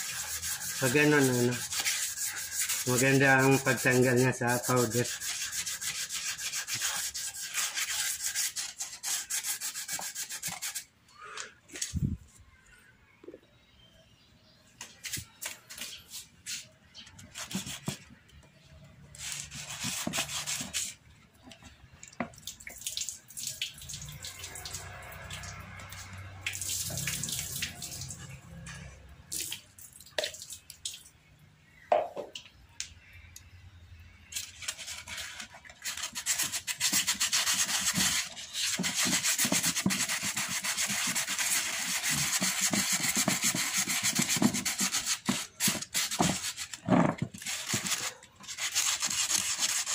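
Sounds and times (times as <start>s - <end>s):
sandpaper scrubbing plastic: 0.0s - 10.9s, 15.1s - 18.0s, 19.2s - 21.0s, 34.3s - 49.9s.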